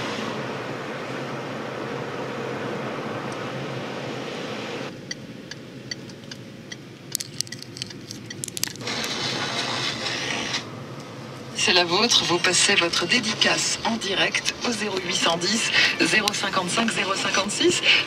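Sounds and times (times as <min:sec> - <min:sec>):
car road and engine noise: 0:00.0 - 0:18.0
turn signal ticking: 0:05.0 - 0:06.8
rattling clicks: 0:05.5 - 0:09.1.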